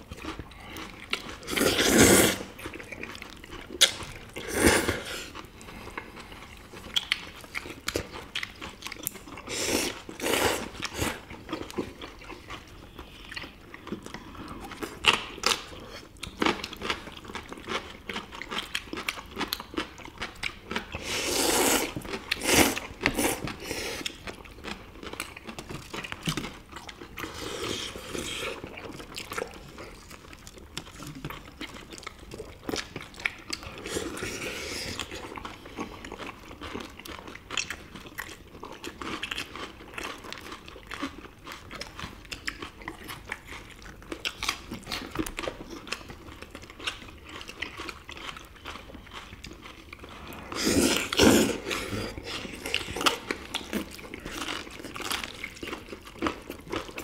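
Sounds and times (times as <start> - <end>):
chewing and crunching: 0.0 - 57.0
slurping noodles: 1.4 - 2.7, 3.8 - 5.4, 21.0 - 24.2, 50.0 - 53.5.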